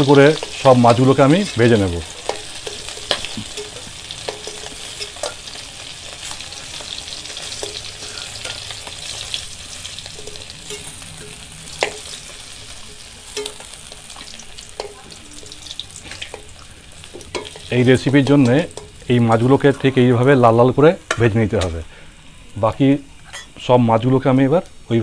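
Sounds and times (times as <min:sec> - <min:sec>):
fish sizzling in hot oil: 0:00.0 - 0:22.5
metal spatula clicking on pan: 0:02.2 - 0:05.4, 0:13.3 - 0:14.1, 0:14.7 - 0:15.0.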